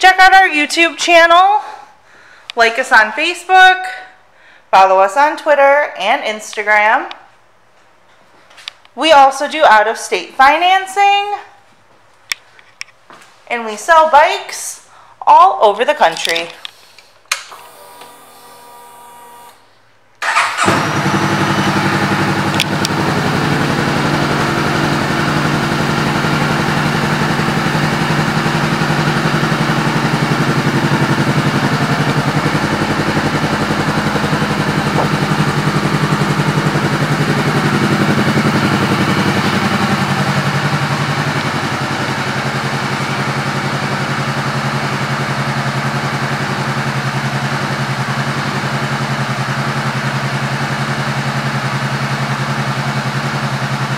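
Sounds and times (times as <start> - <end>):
motorcycle engine starting and idling: 17.3 - 19.6, 20.2 - 53.9.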